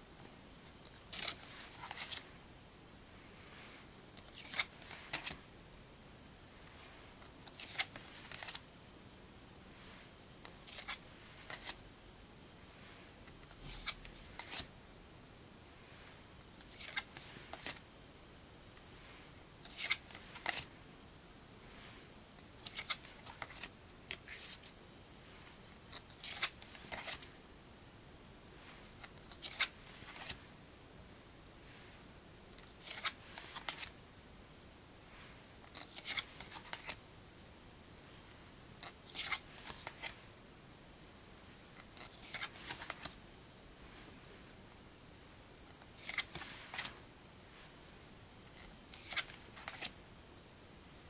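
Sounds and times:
cards sliding and snapping: 0.9 - 2.2, 4.2 - 5.4, 7.4 - 8.6, 10.4 - 11.8, 13.5 - 14.7, 16.6 - 17.8, 19.7 - 20.7, 22.6 - 24.7, 25.9 - 27.3, 29.0 - 30.4, 32.6 - 33.9, 35.7 - 37.0, 38.8 - 40.2, 42.0 - 43.2, 45.9 - 47.0, 48.6 - 49.9.

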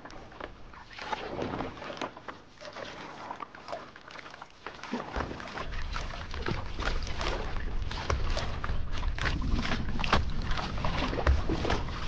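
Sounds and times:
paddles splashing water: 0.0 - 12.0
wind rumble on microphone: 6.0 - 12.0.

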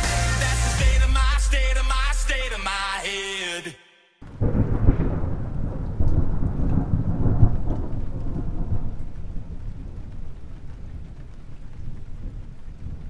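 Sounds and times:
thunder rumbling: 4.2 - 13.0.

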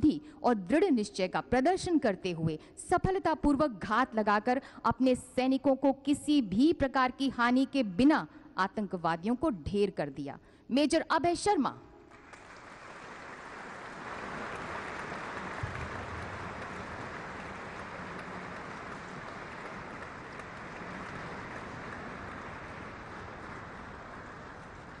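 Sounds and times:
audience applauding: 12.1 - 25.0.

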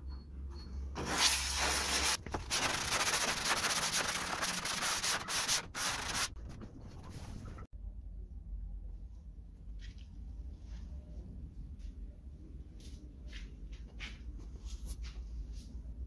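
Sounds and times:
hand sanding a board: 1.0 - 6.4.

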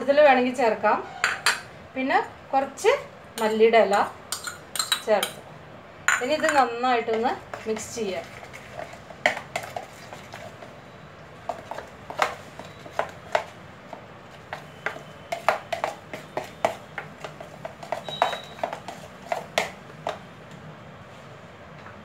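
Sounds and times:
spoon clicking against plastic bowl: 4.3 - 5.4.

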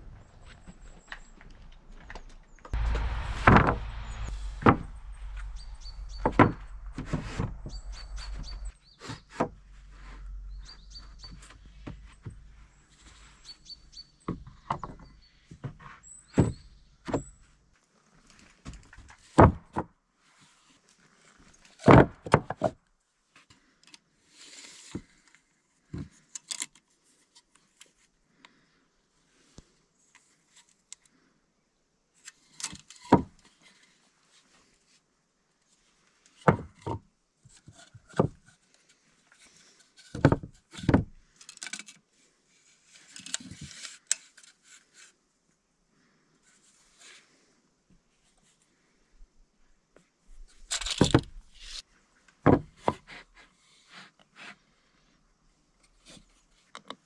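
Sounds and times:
wood scraping on wood: 0.0 - 13.4.

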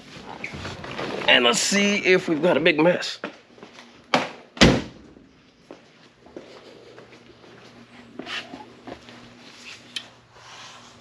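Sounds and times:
faint steady hum: 0.0 - 11.0
loud thump: 4.1 - 5.2.

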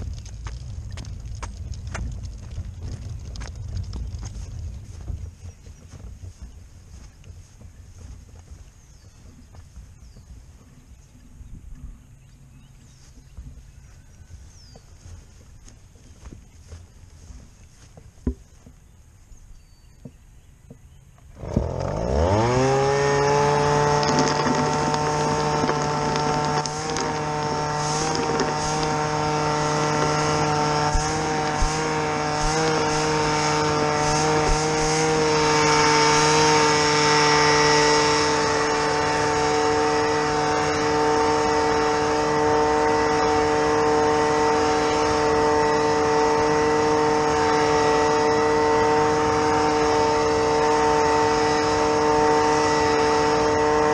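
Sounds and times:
motor spinning up and running: 21.3 - 53.9.

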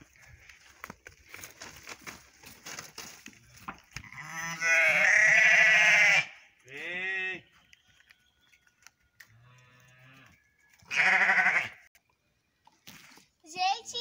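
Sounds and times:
sheep bleating: 4.0 - 7.4, 10.9 - 11.8.

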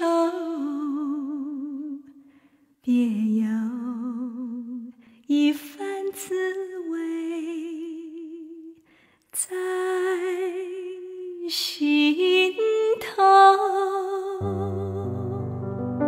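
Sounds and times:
woman singing unaccompanied: 0.0 - 2.1, 2.8 - 8.8, 9.4 - 15.6
keyboard chords: 14.4 - 16.0.

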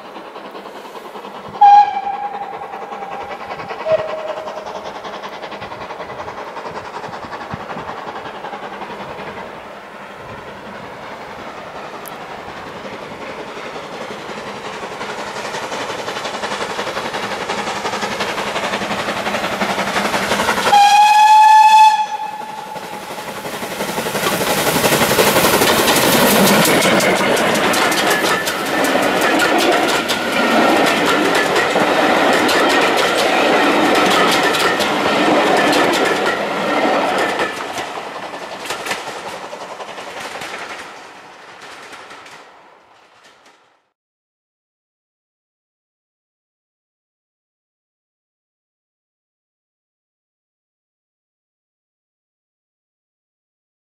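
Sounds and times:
train wheels clickety-clack: 0.0 - 43.9
steam locomotive: 0.0 - 44.0
steam whistle blast: 1.6 - 4.6, 20.7 - 23.1.

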